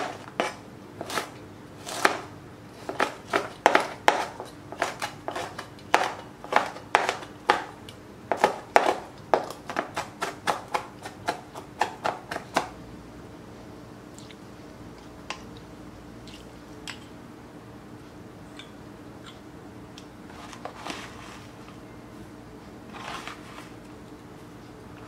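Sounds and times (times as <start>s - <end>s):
knife chopping on cutting board: 0.0s - 2.3s, 2.9s - 7.7s, 8.3s - 12.7s.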